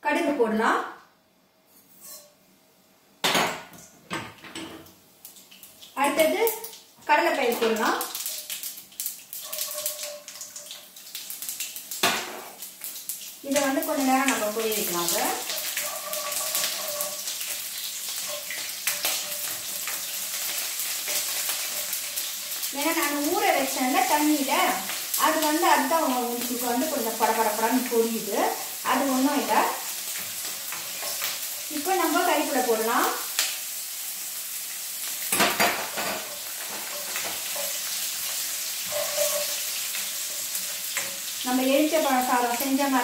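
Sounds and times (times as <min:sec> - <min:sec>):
seeds sizzling in hot oil: 0:07.0 - 0:43.0
spatula stirring in pan: 0:08.2 - 0:11.4, 0:14.0 - 0:25.2, 0:28.9 - 0:32.6, 0:35.8 - 0:43.0.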